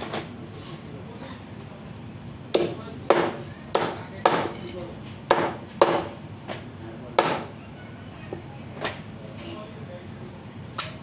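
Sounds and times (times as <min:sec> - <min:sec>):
cleaver chopping on wooden block: 0:02.5 - 0:04.5, 0:05.3 - 0:06.1.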